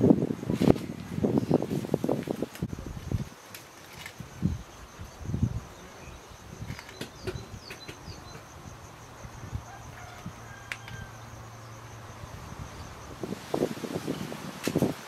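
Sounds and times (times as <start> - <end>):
high insect drone: 0.0 - 15.0
bird chirps: 6.0 - 8.5.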